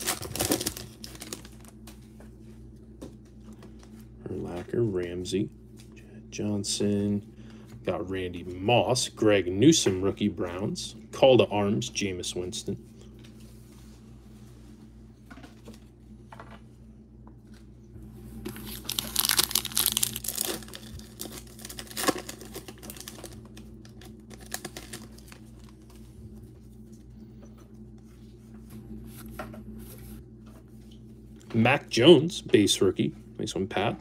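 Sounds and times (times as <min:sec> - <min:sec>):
foil wrapper tearing and crinkling: 0:00.0 - 0:01.8, 0:18.5 - 0:25.8.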